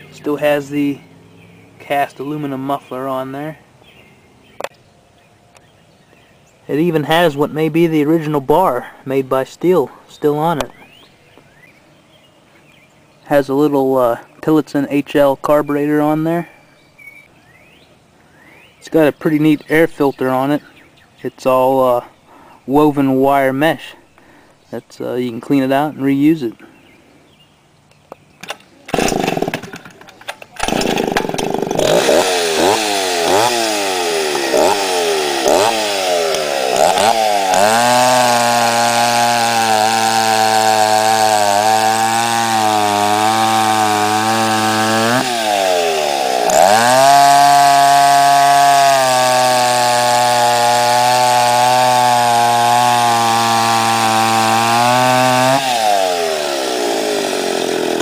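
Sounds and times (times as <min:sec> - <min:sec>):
chainsaw cutting a log: 0:28.9 - 0:58.0.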